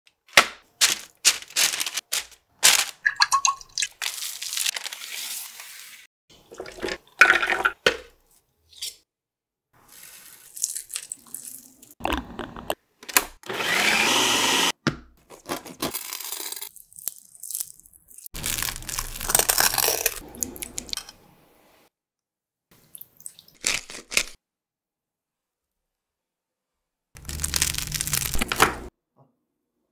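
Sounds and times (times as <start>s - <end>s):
parchment paper crinkling: 0.2s - 3.1s, 3.9s - 5.9s, 18.3s - 20.2s, 27.2s - 28.9s
food processor running: 13.4s - 14.7s.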